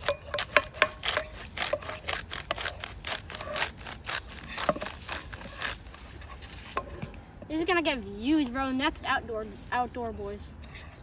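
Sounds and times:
wooden spoon scraping a pan: 0:00.0 - 0:07.1.

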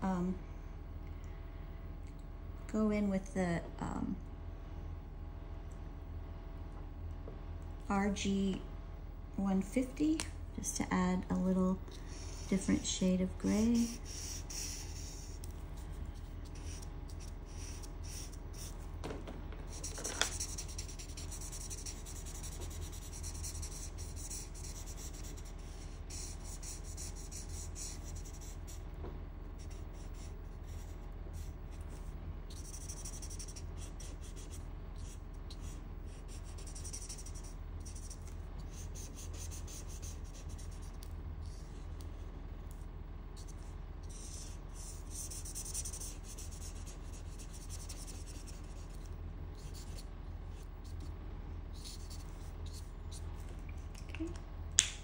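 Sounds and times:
steady low hum: 0:00.0 - 0:55.0
marker scratching on paper: 0:12.0 - 0:18.9, 0:19.7 - 0:28.8, 0:29.6 - 0:41.6, 0:43.4 - 0:53.3.

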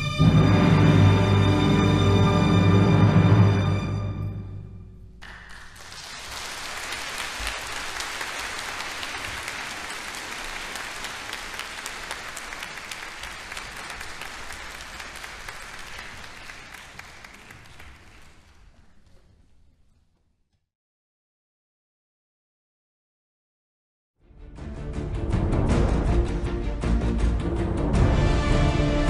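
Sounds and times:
audience applauding: 0:05.2 - 0:18.8.

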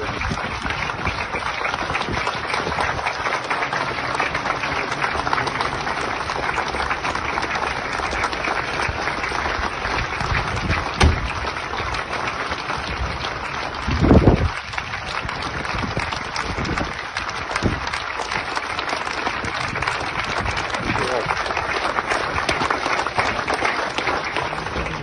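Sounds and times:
crowd clapping: 0:00.0 - 0:25.0
short thump: 0:11.0 - 0:11.3.

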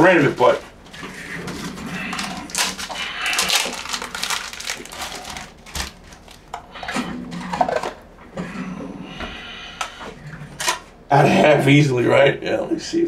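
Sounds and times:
crinkling and rustling: 0:00.0 - 0:08.5.

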